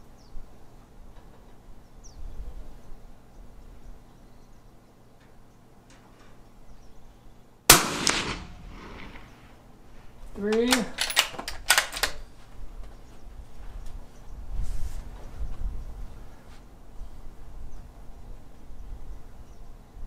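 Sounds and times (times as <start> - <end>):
gunshot echo: 7.7 - 9.6
suppressed rifle shot: 7.7 - 9.6.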